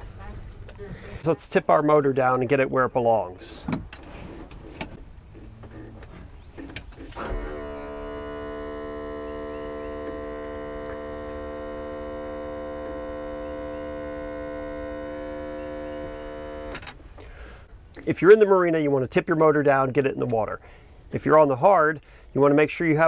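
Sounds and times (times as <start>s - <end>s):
electric pump humming: 7.0s - 17.3s.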